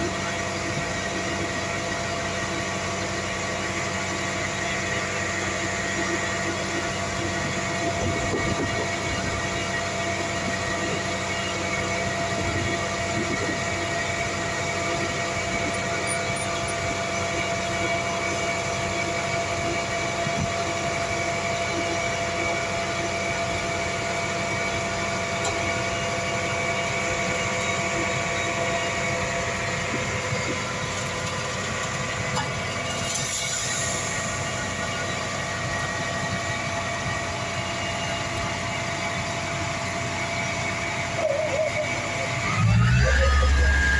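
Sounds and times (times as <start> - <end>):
diesel engines running: 0.0 - 43.9
high whine: 0.0 - 43.9.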